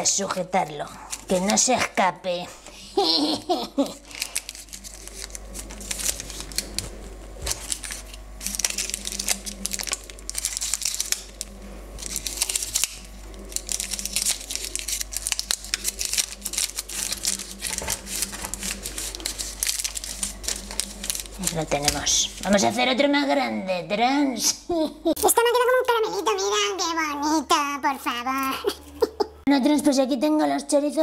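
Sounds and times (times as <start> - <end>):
baking paper crinkling and rustling: 0.0 - 23.0
paper roll rolled on countertop: 4.7 - 22.8.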